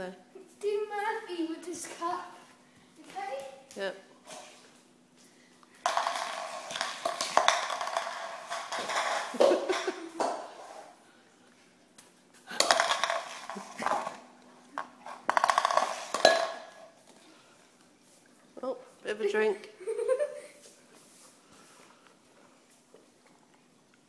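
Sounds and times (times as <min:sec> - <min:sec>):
plastic cup rattling on tile floor: 0:05.8 - 0:10.8, 0:12.5 - 0:17.0.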